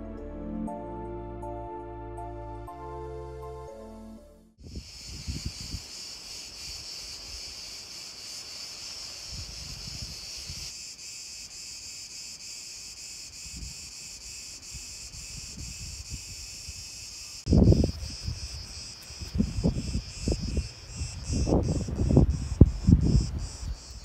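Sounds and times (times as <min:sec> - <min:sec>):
wind buffeting microphone: 0:04.6 - 0:06.0, 0:09.2 - 0:10.7, 0:15.1 - 0:16.9, 0:17.5 - 0:24.0
cicadas buzzing: 0:04.6 - 0:24.0.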